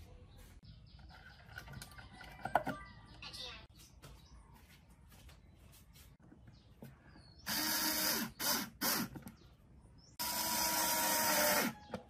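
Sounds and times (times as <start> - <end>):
cordless drill driving screws: 7.5 - 9.2, 10.2 - 11.8.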